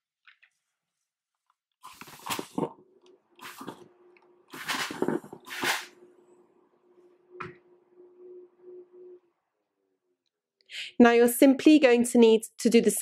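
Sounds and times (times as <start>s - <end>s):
steady low hum: 2.0s - 10.3s.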